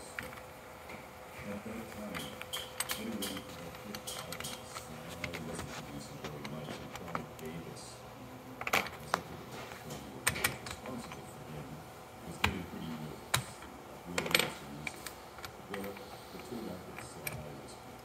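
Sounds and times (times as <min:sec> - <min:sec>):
metal clicks and clinks: 0:02.1 - 0:05.4.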